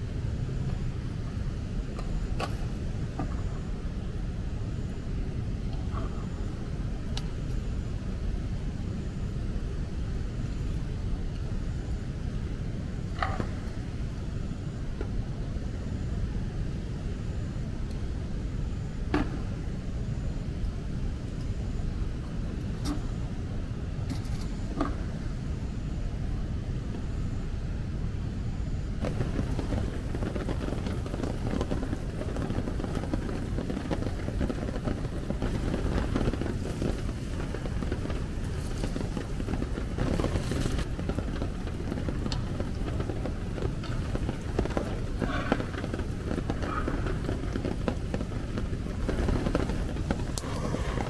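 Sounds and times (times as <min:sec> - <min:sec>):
low rumble of wind: 0:00.0 - 0:51.0
steady rain: 0:29.0 - 0:51.0.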